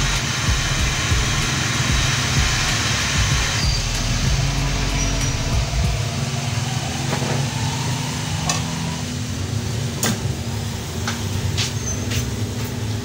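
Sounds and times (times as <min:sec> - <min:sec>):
deeper hum: 0:00.0 - 0:11.5
steady low hum: 0:00.0 - 0:13.0.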